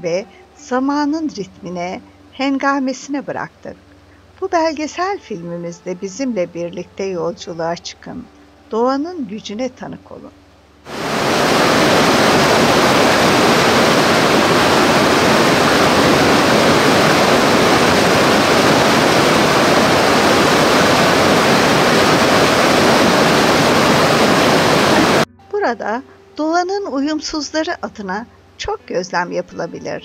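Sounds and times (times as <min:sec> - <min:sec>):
river water rushing: 0:10.9 - 0:25.3.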